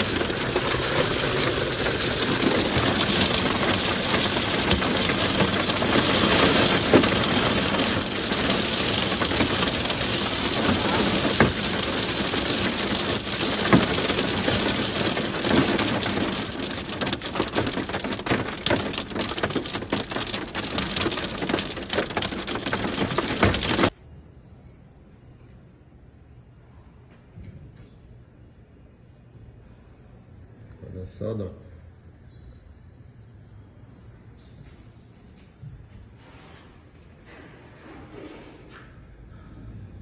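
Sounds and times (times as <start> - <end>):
hail and rain drumming on car: 0.0 - 23.9.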